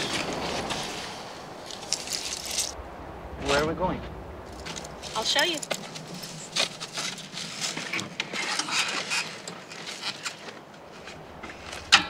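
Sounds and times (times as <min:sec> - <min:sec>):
rustling and scuffing: 0:04.5 - 0:12.0.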